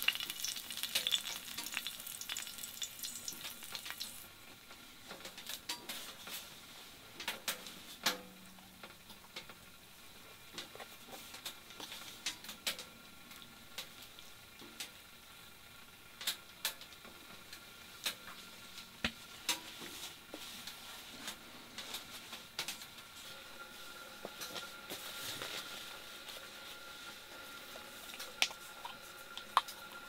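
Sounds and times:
wood fire crackling: 0.0 - 4.4.

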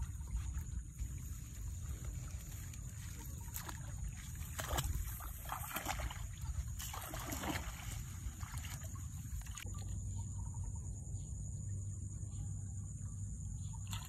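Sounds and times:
steady low rumble: 0.0 - 5.1
water splashing and trickling: 0.0 - 9.9.

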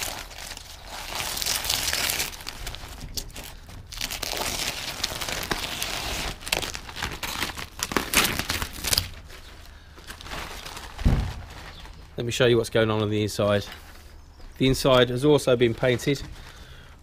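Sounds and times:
paper crinkling and tearing: 0.0 - 12.4.

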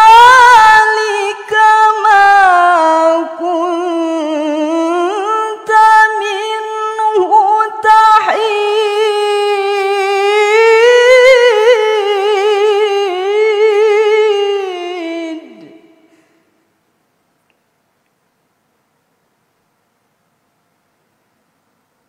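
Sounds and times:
woman reciting melodically: 0.0 - 16.2.

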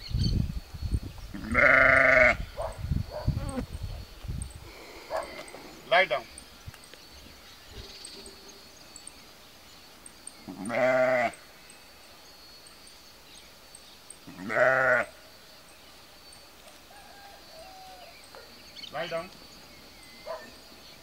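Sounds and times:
sheep bleating: 1.4 - 2.4, 10.5 - 11.4, 14.3 - 15.1.

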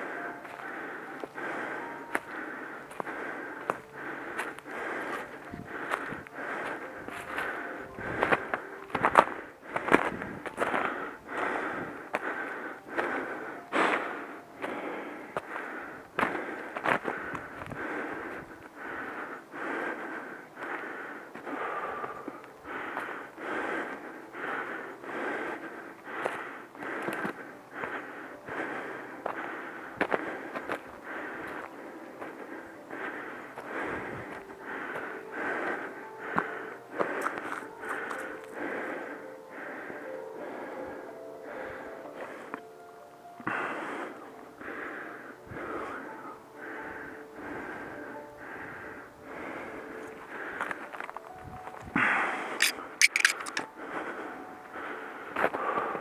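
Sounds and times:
heavy breathing: 0.0 - 56.0
sharp clicks: 52.6 - 53.7.

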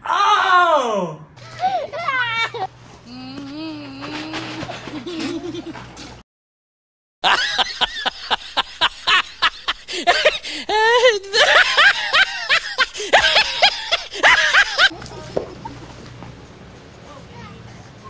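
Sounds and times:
person laughing hysterically: 1.4 - 2.7, 4.4 - 5.8, 7.2 - 14.9.

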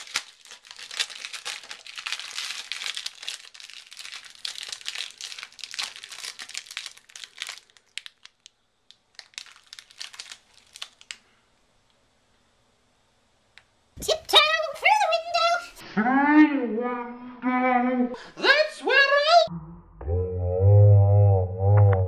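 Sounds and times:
plastic film crinkling: 0.0 - 11.3.

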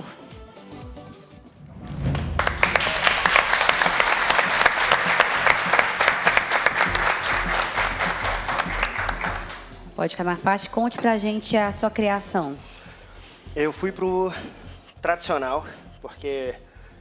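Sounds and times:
group of people applauding: 2.1 - 9.8.

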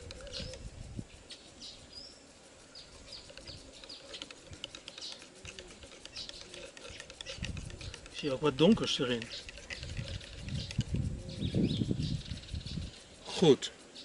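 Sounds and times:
bird chirps: 0.0 - 13.3
stick scraping inside eggshell: 3.1 - 13.0.

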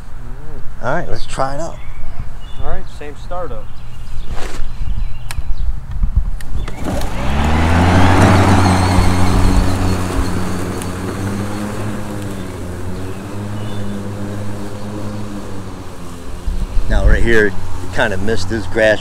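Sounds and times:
electric lawn mower humming: 6.6 - 19.0.

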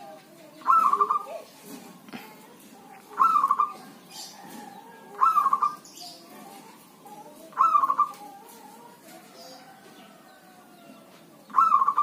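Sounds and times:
dove cooing: 0.0 - 12.0.

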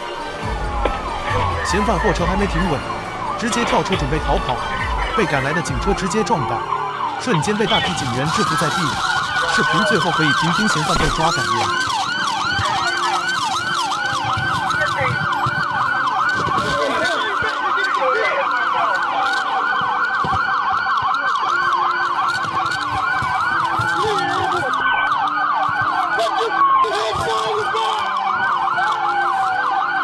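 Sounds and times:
voices: 0.0 - 23.0
police sirens yelping: 0.0 - 30.0.

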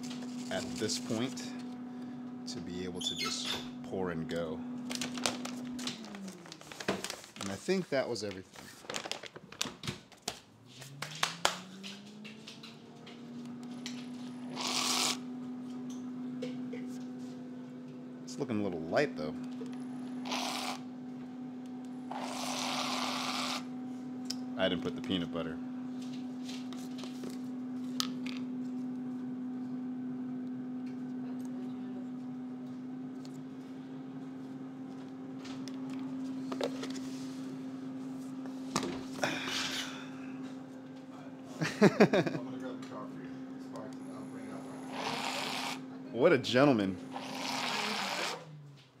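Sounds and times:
appliance electrical hum: 0.0 - 49.0
small electric motor humming: 11.5 - 17.9, 19.1 - 23.9, 44.0 - 46.0, 46.6 - 48.6.

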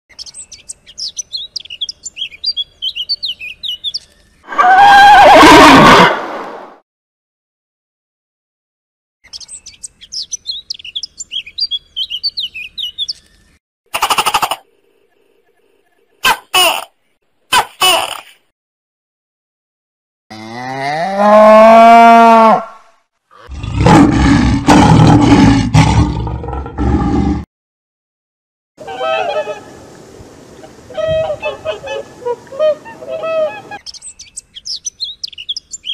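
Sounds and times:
small bird chirping: 0.1 - 4.4, 9.2 - 16.2, 33.8 - 35.9
cow mooing: 20.3 - 22.8
lion roaring: 23.3 - 27.4.

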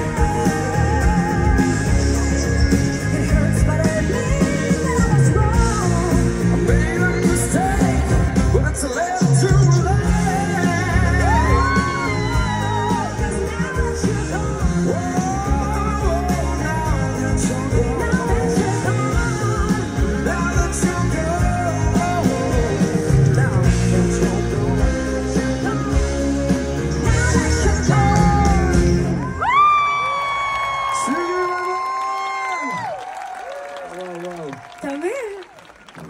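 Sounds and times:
person singing: 0.0 - 29.4
live band playing pop-rock ballad: 0.0 - 29.7.

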